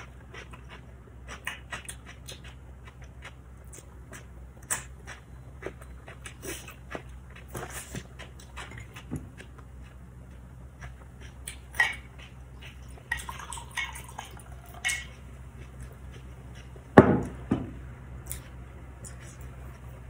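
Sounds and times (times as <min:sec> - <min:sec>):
liquid pouring into a mug: 0:13.1 - 0:15.0.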